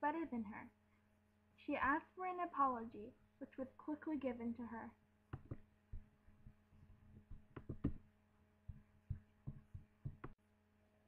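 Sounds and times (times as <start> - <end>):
low electrical hum: 0.0 - 11.0
soft knocks of puppets handled: 5.3 - 8.1, 8.7 - 10.4.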